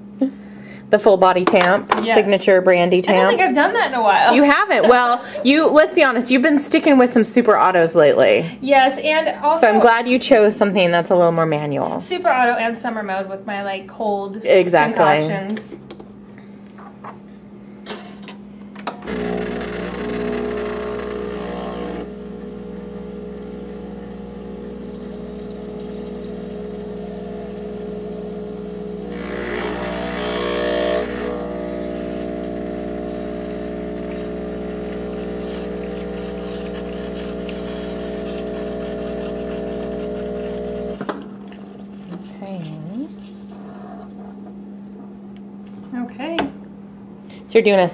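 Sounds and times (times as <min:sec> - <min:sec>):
espresso machine pump humming: 0:19.0 - 0:44.7.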